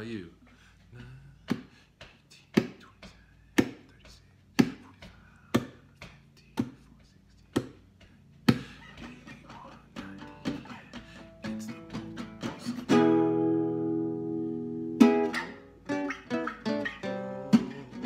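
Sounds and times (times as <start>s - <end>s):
percussive knocks on acoustic guitar: 4.6s - 4.8s.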